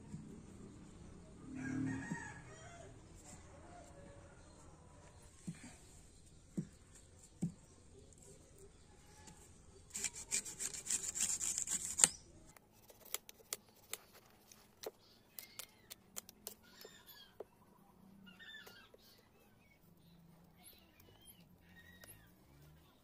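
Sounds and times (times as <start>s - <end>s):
knife rasping coconut husk: 9.9s - 12.2s.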